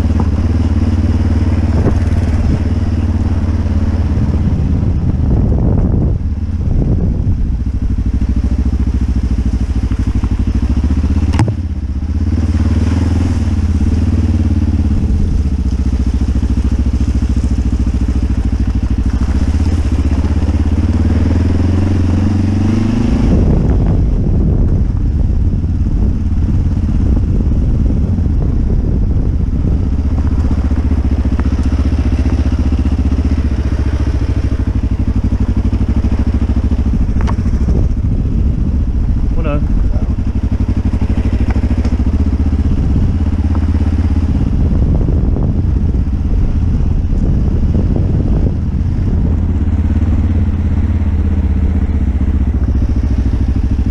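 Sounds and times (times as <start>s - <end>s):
motorcycle engine running: 0.0s - 53.9s.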